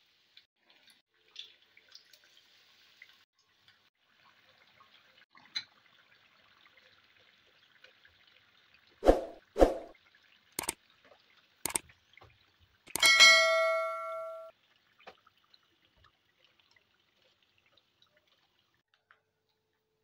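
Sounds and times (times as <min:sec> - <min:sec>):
potatoes sizzling in frying oil: 0:01.6 - 0:04.8
metal utensils knocking on pan: 0:12.9 - 0:14.5.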